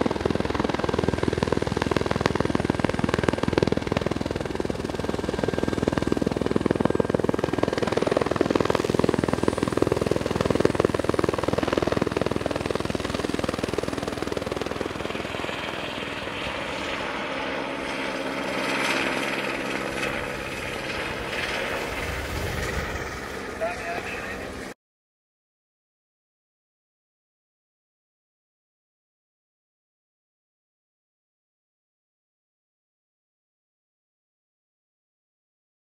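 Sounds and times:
helicopter rotor chopping: 0.0s - 24.8s.

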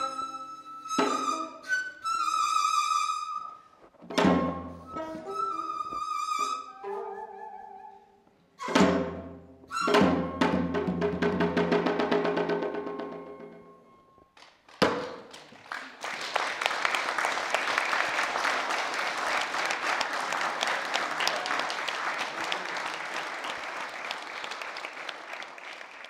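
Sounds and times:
audience applauding: 14.4s - 26.0s.

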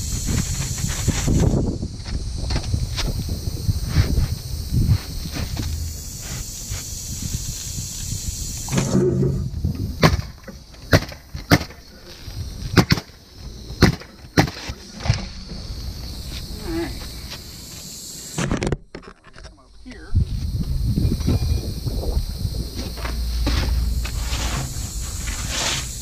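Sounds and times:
roofing nailer shots: 10.0s - 11.8s, 12.7s - 14.8s.

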